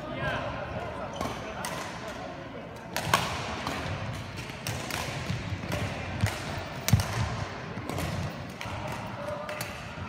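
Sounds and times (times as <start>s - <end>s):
racket hitting shuttlecock: 2.8s - 10.0s.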